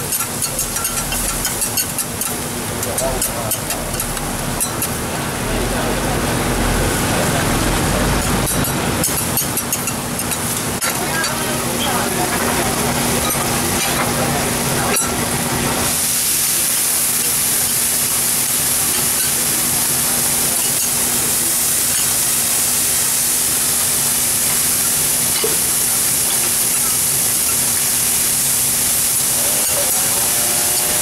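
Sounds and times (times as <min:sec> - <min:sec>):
food hissing on a hot griddle: 0:15.8 - 0:31.0.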